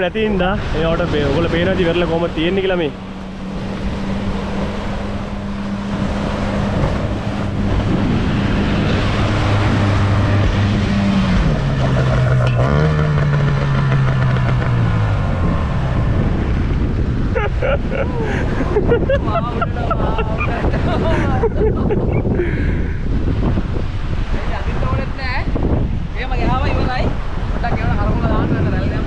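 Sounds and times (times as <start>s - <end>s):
waves breaking: 0.0s - 29.0s
outboard motor running: 1.6s - 18.9s.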